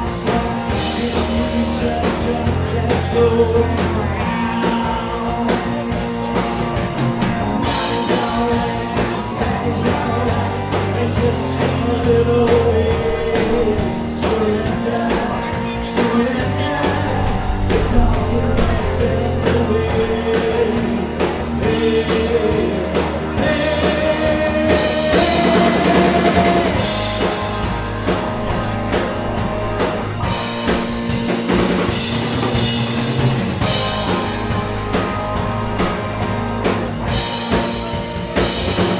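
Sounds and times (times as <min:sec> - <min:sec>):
man singing into a microphone: 0:00.0 - 0:06.7, 0:07.6 - 0:27.1
rock band playing: 0:00.0 - 0:38.9.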